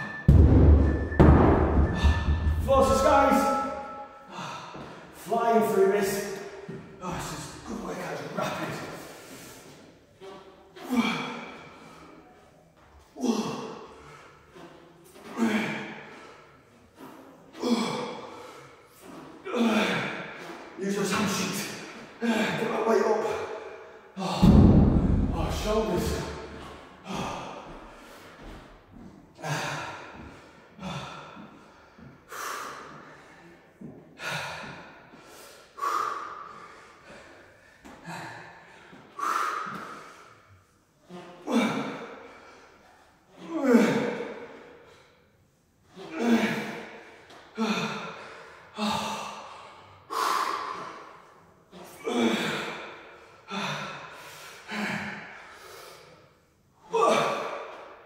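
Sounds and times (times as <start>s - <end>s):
man breathing hard: 1.9s - 5.2s, 23.2s - 40.8s, 46.3s - 56.6s.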